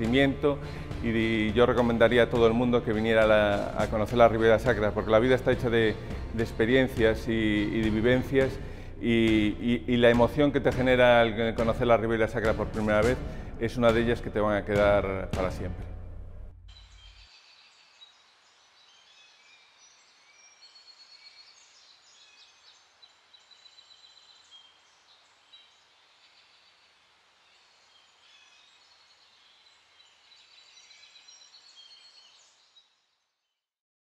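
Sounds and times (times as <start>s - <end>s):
faint birdsong chirps: 16.7s - 33.7s
soft hiss: 17.2s - 32.6s.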